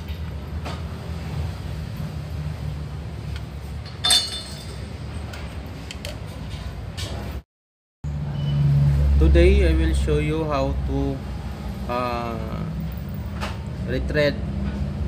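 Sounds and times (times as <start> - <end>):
metallic clink with ring: 4.0 - 4.9.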